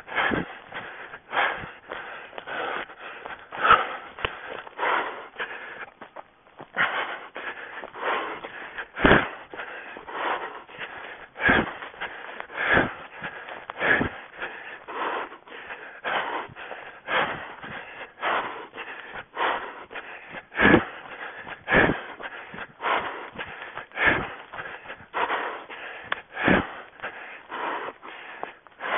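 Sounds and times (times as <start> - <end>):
runner breathing hard: 0.0 - 28.9
heavy thumps: 9.0 - 9.3.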